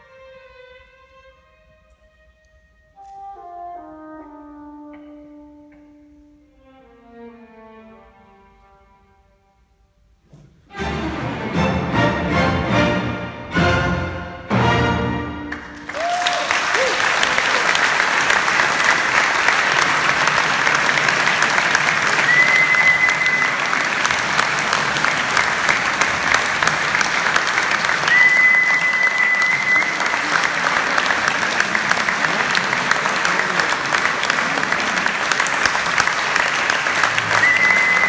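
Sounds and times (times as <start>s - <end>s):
audience applauding: 15.5s - 38.0s.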